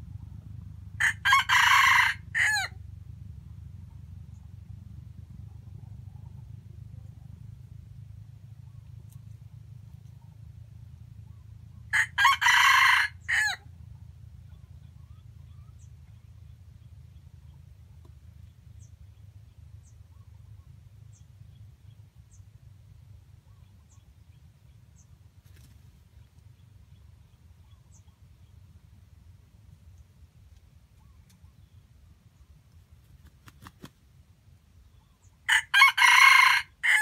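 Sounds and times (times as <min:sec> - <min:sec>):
steady low rumble: 0:00.0 - 0:12.2, 0:13.1 - 0:35.5
rooster crowing: 0:01.0 - 0:02.8, 0:11.9 - 0:13.6, 0:35.5 - 0:37.0.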